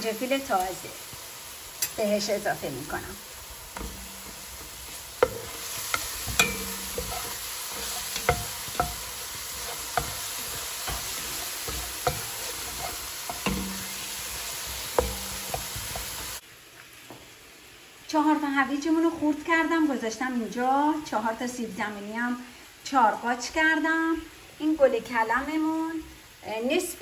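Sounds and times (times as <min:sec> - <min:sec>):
aromatics sizzling in hot oil: 0:00.0 - 0:27.0
spatula tapping and scraping pan: 0:03.7 - 0:16.4.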